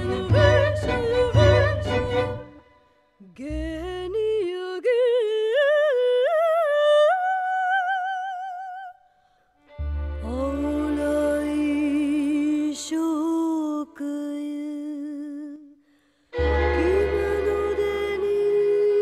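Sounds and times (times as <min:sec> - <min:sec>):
accompanying music: 0:00.0 - 0:02.8, 0:09.7 - 0:12.9, 0:16.4 - 0:19.0
operatic soprano singing: 0:00.0 - 0:09.0, 0:10.2 - 0:15.8, 0:16.4 - 0:19.0.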